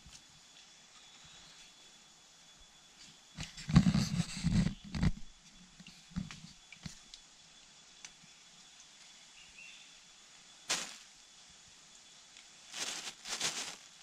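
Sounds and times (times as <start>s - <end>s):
leaves and undergrowth swishing: 10.7s - 11.1s, 12.6s - 14.0s.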